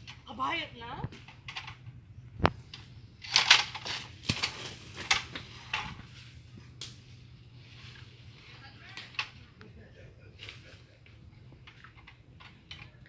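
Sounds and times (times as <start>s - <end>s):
dry rustling and crunching leaves: 3.6s - 6.6s.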